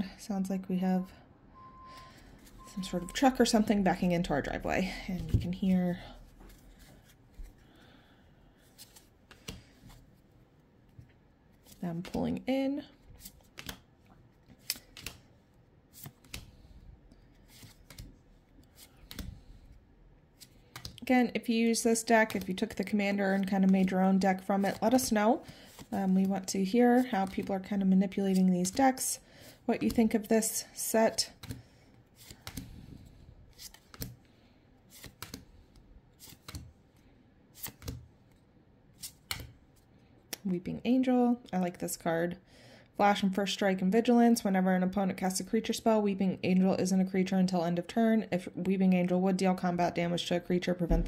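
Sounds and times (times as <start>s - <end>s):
trading cards swishing and snapping: 8.6s - 10.1s, 13.2s - 15.3s, 15.9s - 21.0s, 22.0s - 29.0s, 31.3s - 34.3s, 34.9s - 40.4s
trading cards clicking: 14.5s - 15.2s, 20.7s - 21.0s, 32.2s - 32.7s.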